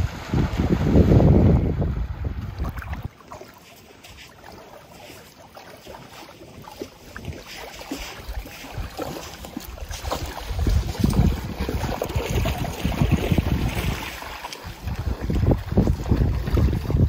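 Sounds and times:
wind buffeting microphone: 0:00.0 - 0:03.1, 0:07.1 - 0:17.0
water lapping at shore: 0:00.0 - 0:17.0.

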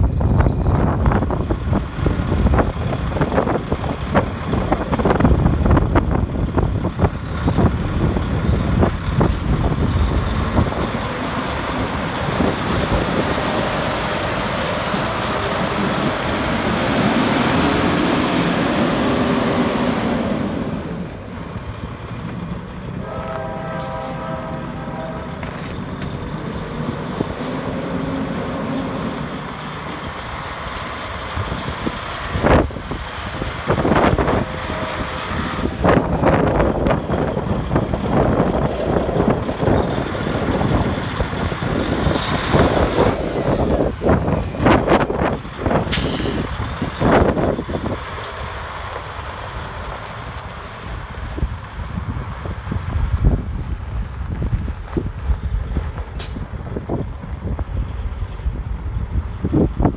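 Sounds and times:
diesel engine idling: 0:00.0 - 0:59.9
brief horn-like tone: 0:23.0 - 0:25.7.

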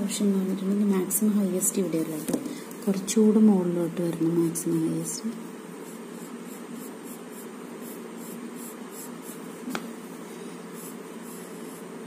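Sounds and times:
low background hum: 0:00.0 - 0:12.0
pencil scratching on paper: 0:05.7 - 0:12.0.

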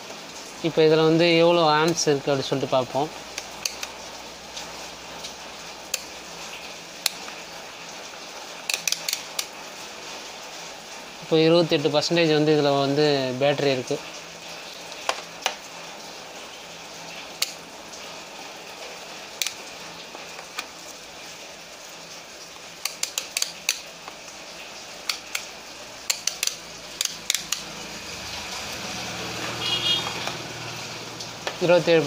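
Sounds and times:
multimeter dial clicking: 0:08.7 - 0:09.5, 0:22.8 - 0:23.8, 0:26.1 - 0:27.6.

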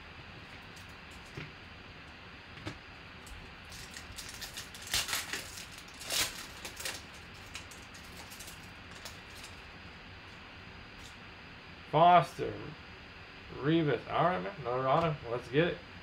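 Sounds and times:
foil wrapper tearing and crinkling: 0:03.6 - 0:09.6.

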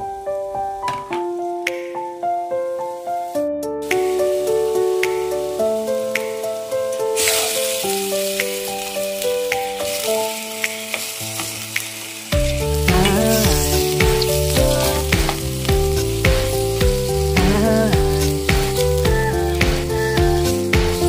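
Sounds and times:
chicken sizzling in oil: 0:02.8 - 0:21.0
background music with drum beat: 0:03.8 - 0:05.5, 0:09.4 - 0:21.0.

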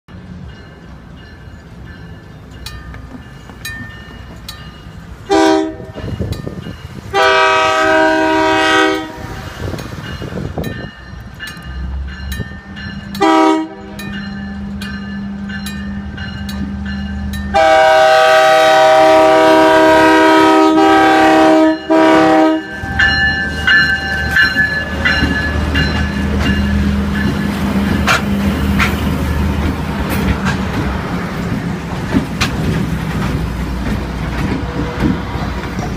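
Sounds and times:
crossing bell ringing: 0:00.1 - 0:30.3
locomotive engine rumble: 0:00.1 - 0:35.9
locomotive horn blasts: 0:05.3 - 0:06.0, 0:07.1 - 0:09.4, 0:13.2 - 0:14.0, 0:17.5 - 0:23.1.

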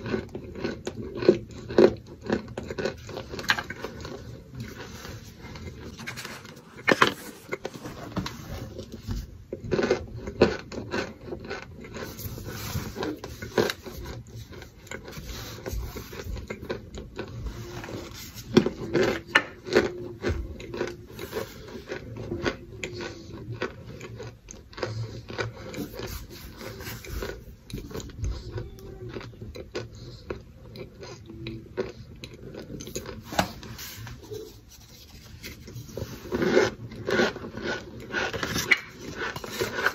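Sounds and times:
crunching and chewing: 0:00.0 - 0:39.9
plastic scoop scraping powder: 0:03.0 - 0:09.3, 0:32.8 - 0:39.9.

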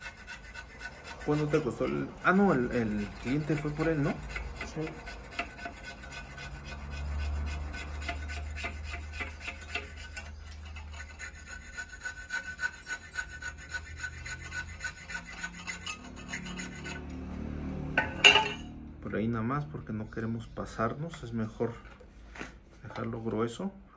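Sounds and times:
hand file rasping on metal: 0:00.0 - 0:18.8.

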